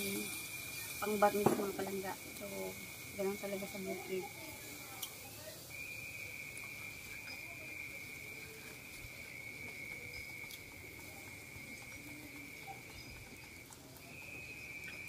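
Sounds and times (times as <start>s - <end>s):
insects trilling: 0.0s - 15.0s
faint clicks: 8.6s - 15.0s.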